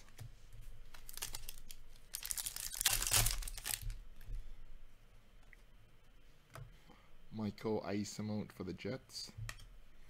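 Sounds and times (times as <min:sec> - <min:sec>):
foil wrapper tearing and crinkling: 0:01.0 - 0:04.0.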